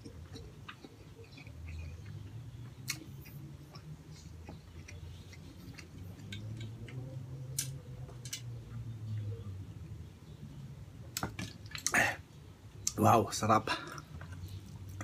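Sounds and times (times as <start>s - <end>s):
lip smacks: 0.0s - 7.8s
chewing with wet clicks: 0.0s - 9.3s, 13.8s - 15.0s
low steady hum: 0.0s - 15.0s.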